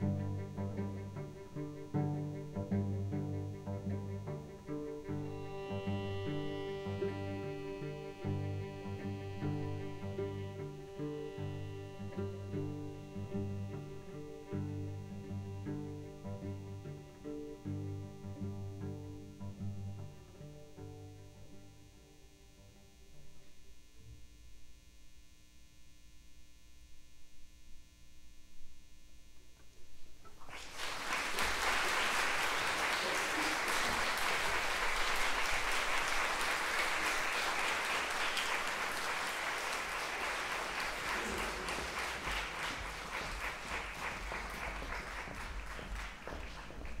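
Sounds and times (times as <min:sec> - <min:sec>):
audience applause: 0:30.3 - 0:47.0.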